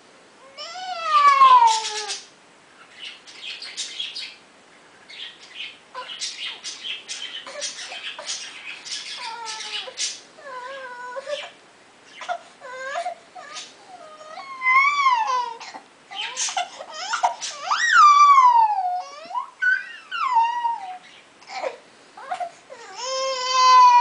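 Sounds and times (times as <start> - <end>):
baby wailing and fussing: 0.4 - 2.2, 9.2 - 11.6, 12.2 - 24.0.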